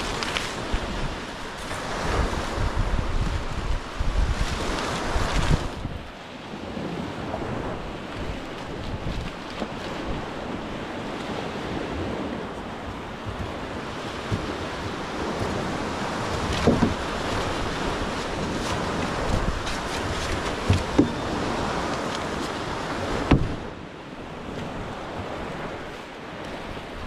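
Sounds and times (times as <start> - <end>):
surf breaking on beach: 0.0 - 27.0
wind buffeting microphone: 0.0 - 27.0.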